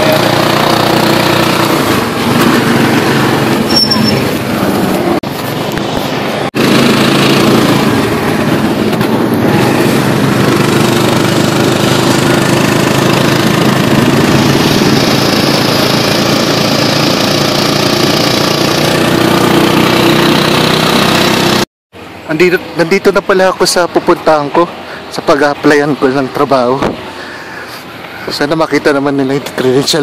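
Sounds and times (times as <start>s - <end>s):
small motorcycle engine running: 0.0s - 21.6s.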